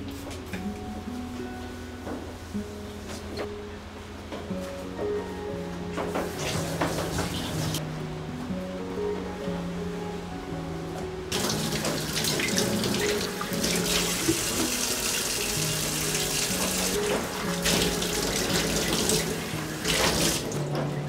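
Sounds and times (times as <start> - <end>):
soft background music: 0.0 - 21.0
tap running into sink: 6.2 - 7.8, 11.4 - 20.6.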